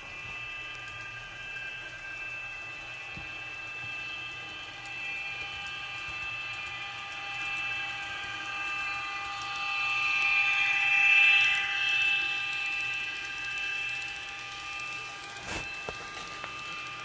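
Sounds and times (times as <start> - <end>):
model locomotive electric whine: 0.0 - 17.0.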